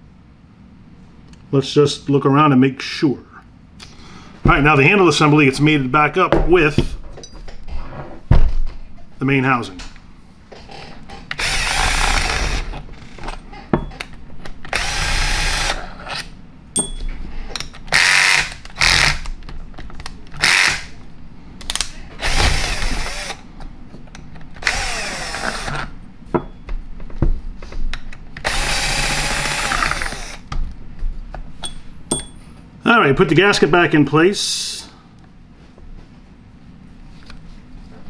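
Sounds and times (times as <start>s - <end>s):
cordless drill motor whine: 11.4s - 12.7s, 22.2s - 23.4s, 24.6s - 25.8s, 28.4s - 30.4s.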